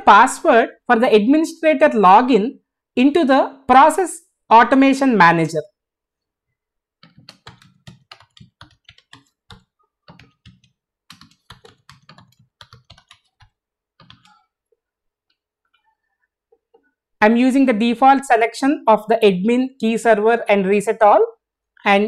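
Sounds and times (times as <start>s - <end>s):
typing on computer keyboard: 7.0s - 14.6s.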